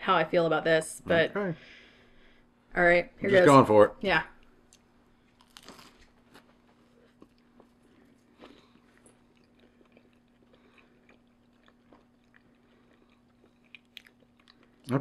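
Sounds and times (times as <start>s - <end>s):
faint steady hum: 0.0s - 15.0s
chewing food: 4.6s - 15.0s.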